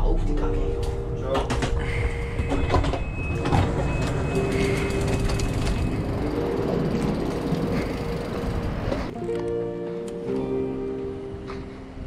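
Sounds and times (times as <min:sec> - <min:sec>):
train hum and rumble: 0:00.8 - 0:09.2
sliding door clattering: 0:01.4 - 0:09.2
high beep: 0:02.3 - 0:06.1.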